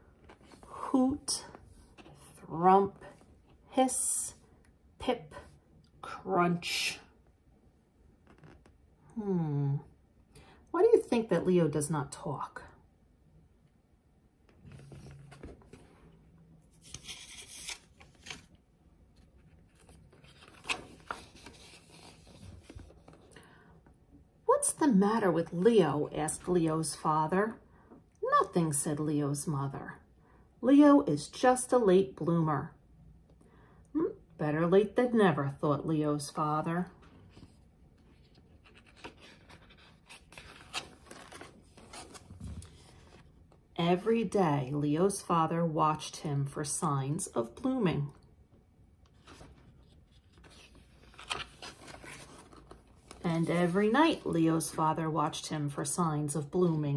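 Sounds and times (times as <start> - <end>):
book pages rustling: 0.0 - 0.7, 1.5 - 2.5, 14.5 - 23.4, 37.0 - 43.7, 49.0 - 54.8.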